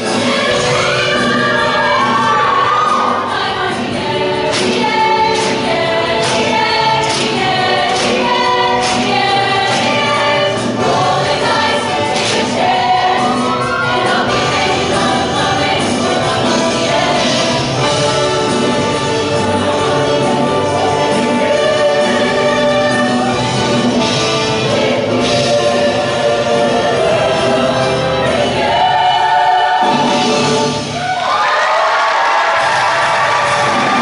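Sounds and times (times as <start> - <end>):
backing music: 0.0 - 34.0
show choir singing: 0.0 - 34.0.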